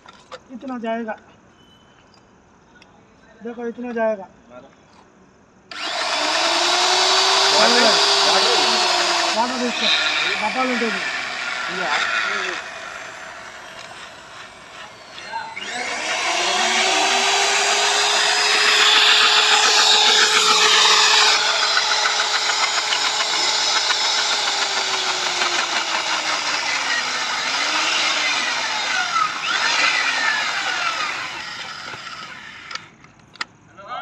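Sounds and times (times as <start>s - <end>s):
cutter grinding steel: 5.7s - 32.9s
drill press motor whine: 5.7s - 32.9s.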